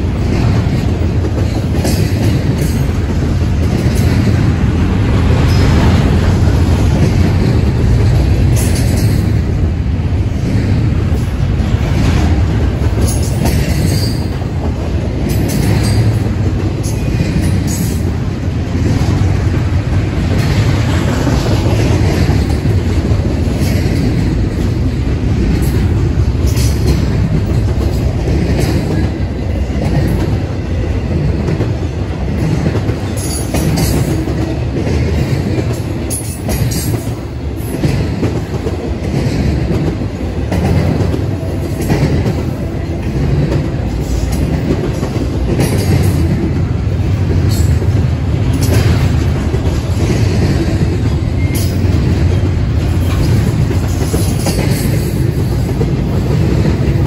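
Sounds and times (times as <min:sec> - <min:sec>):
freight train wheels rumbling: 0:00.0 - 0:57.0
wheels clacking over rail joints: 0:00.0 - 0:57.0.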